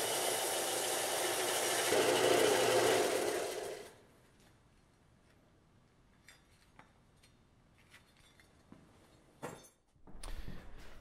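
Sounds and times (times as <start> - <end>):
belt sander running: 0.0 - 4.0.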